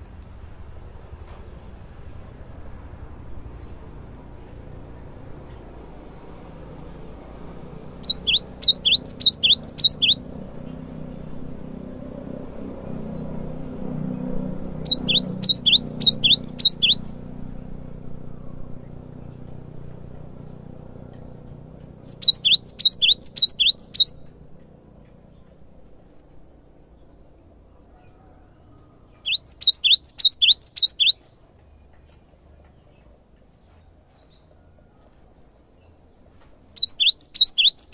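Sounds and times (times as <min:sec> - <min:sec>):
bird singing whistled notes: 0:08.0 - 0:10.2, 0:14.8 - 0:17.2, 0:22.0 - 0:24.3, 0:29.1 - 0:31.4, 0:36.8 - 0:37.9.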